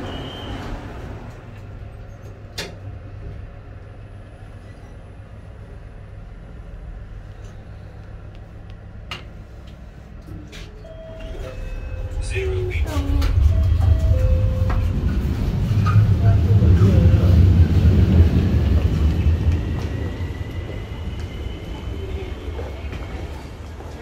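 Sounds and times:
lift cabin hum: 0:00.0 - 0:24.0
high beep: 0:10.8 - 0:14.9.

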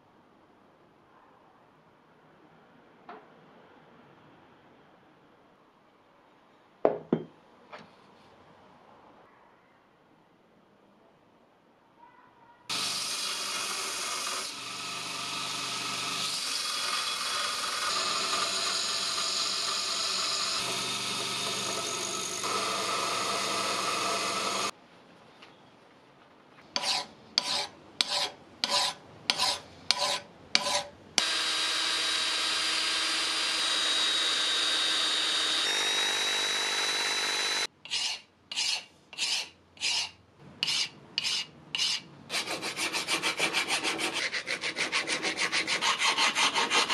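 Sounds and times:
belt grinder grinding steel: 0:12.7 - 0:24.7, 0:30.6 - 0:38.1
hand file rasping on steel: 0:26.8 - 0:30.9, 0:37.6 - 0:46.9.

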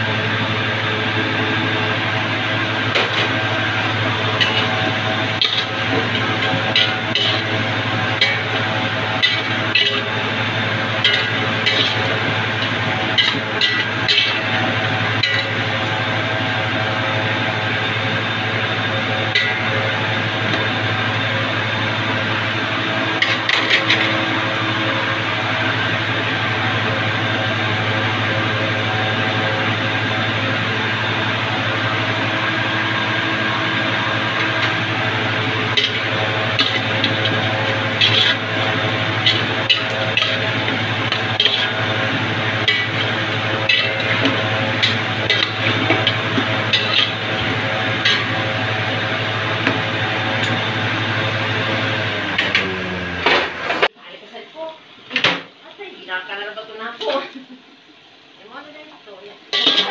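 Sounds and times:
metal ladle scraping pot: 0:04.3 - 0:10.2, 0:11.0 - 0:14.6, 0:15.2 - 0:15.6, 0:35.7 - 0:48.4, 0:59.5 - 0:59.9.

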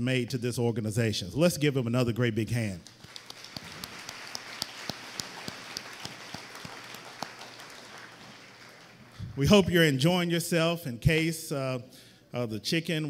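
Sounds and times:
audience applauding: 0:02.9 - 0:09.2.

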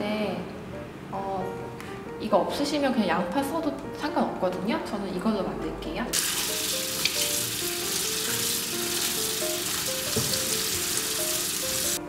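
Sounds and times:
tap water spraying onto vegetables: 0:06.2 - 0:12.0.

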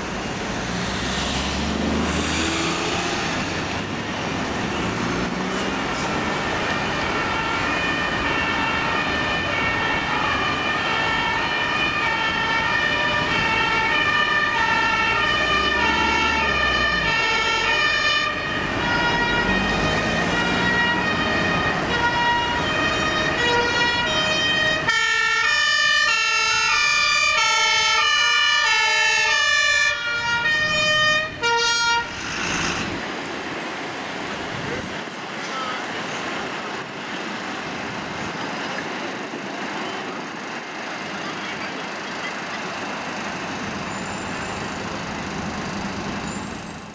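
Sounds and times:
road traffic rumble: 0:00.0 - 0:46.9
two-tone sirens: 0:01.2 - 0:33.0.

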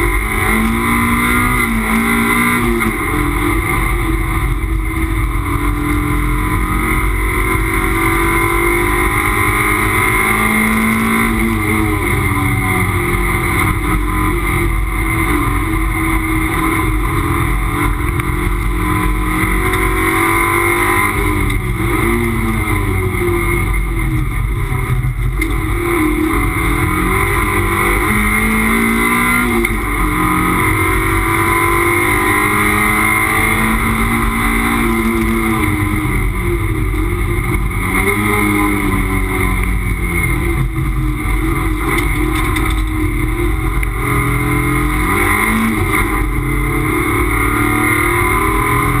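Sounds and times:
race car engine accelerating: 0:00.0 - 0:49.0.

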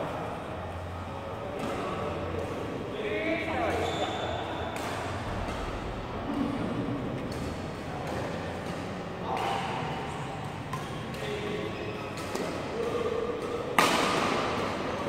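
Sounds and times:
rackets striking shuttlecock: 0:04.6 - 0:15.0.

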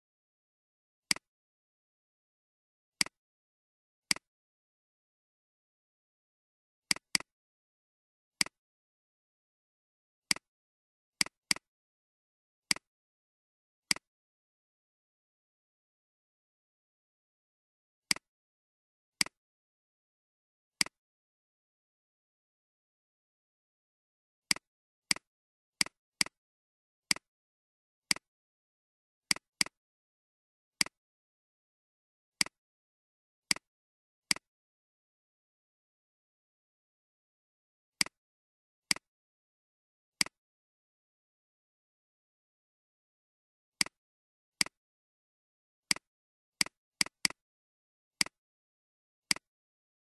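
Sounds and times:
computer mouse clicks: 0:06.9 - 0:07.3, 0:24.5 - 0:26.4.

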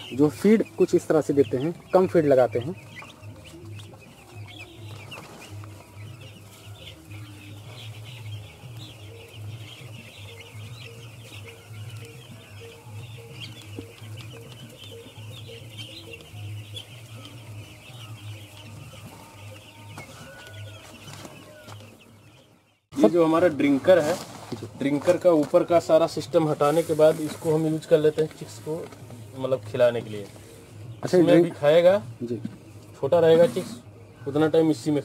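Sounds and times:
chicks peeping: 0:00.0 - 0:35.0.

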